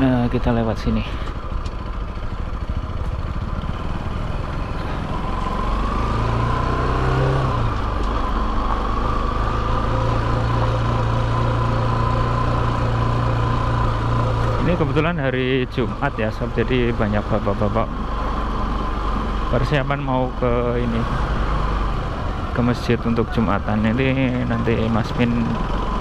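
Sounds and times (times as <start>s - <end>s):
motorcycle engine running: 0.0s - 26.0s
road noise: 0.0s - 26.0s.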